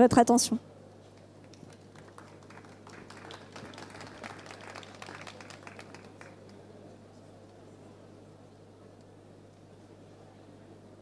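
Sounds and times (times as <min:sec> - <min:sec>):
small audience applauding: 0:01.1 - 0:06.8.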